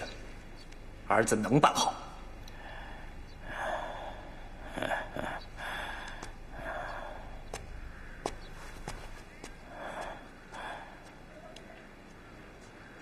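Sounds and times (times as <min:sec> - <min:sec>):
slow breathing: 0:02.4 - 0:11.3
faint clicks: 0:06.0 - 0:13.0.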